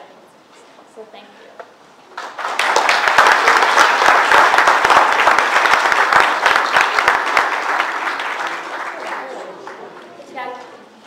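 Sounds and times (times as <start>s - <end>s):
audience applauding: 2.1s - 10.2s.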